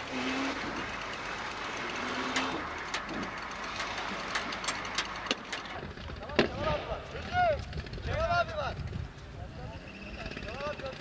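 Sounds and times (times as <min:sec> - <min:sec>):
off-road vehicle engine running: 0:00.0 - 0:11.0
scattered clicks and knocks: 0:00.6 - 0:09.3.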